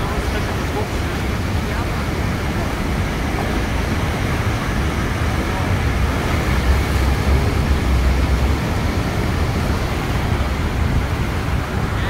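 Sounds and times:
deep rumble: 0:00.0 - 0:12.0
waterfall rushing: 0:00.0 - 0:12.0.

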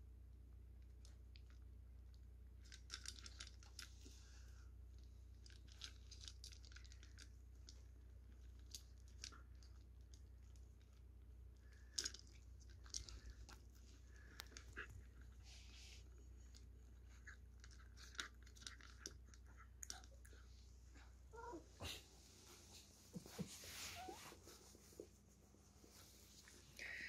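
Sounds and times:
puppy crunching dry kibble: 0:00.8 - 0:20.8.

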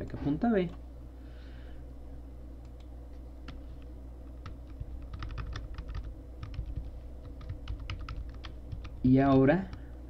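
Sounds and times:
computer keyboard typing: 0:04.4 - 0:09.8.

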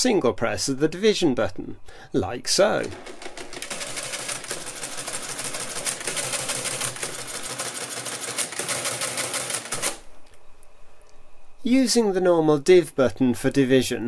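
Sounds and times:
mechanical calculator clattering: 0:02.8 - 0:10.0.

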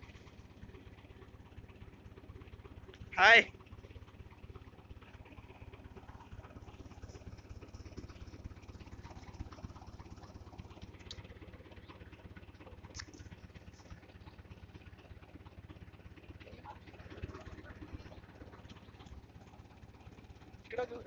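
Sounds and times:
tractor engine running: 0:00.0 - 0:21.0.

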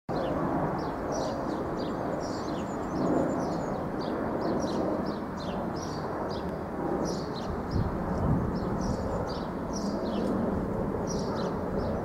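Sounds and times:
small birds chirping: 0:00.1 - 0:12.0.

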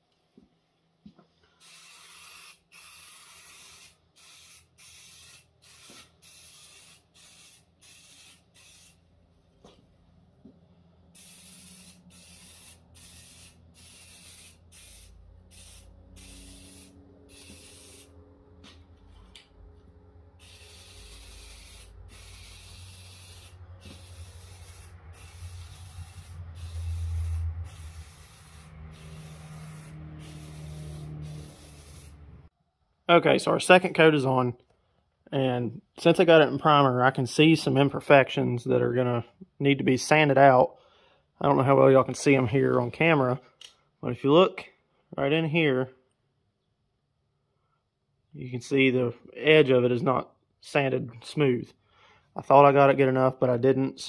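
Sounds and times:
spray can hissing: 0:01.6 - 0:09.0, 0:11.2 - 0:18.2, 0:20.4 - 0:32.2.

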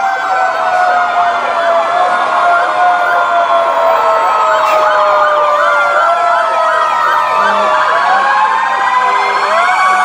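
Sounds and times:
fire truck sirens wailing and yelping: 0:00.0 - 0:10.0.

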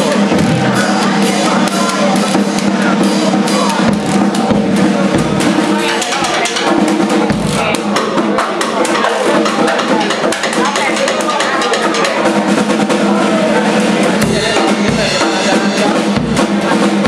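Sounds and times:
bass guitar: 0:00.0 - 0:10.0
drum-kit beat: 0:00.0 - 0:17.0.

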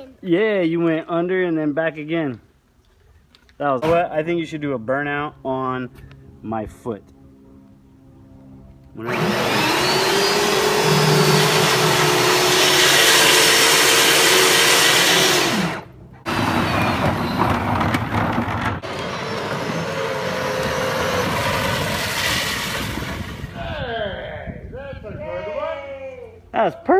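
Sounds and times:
electric motors whining: 0:08.8 - 0:23.5.

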